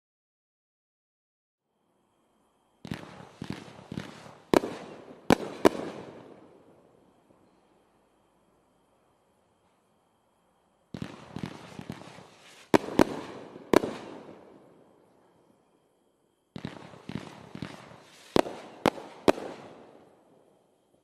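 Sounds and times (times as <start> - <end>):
fireworks popping and banging: 11.0 - 14.2.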